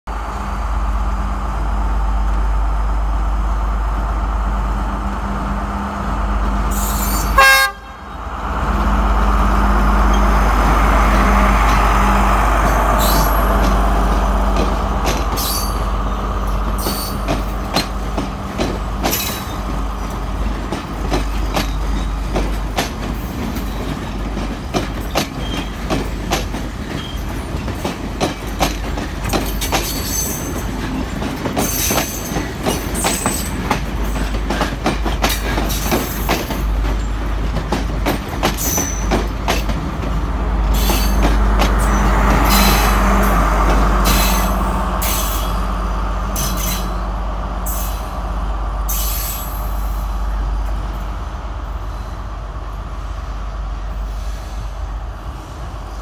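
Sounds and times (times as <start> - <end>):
diesel train engine hum: 0.1 - 56.0
train horn toot: 6.7 - 8.1
train wheels clacking on rail joints: 8.6 - 48.2.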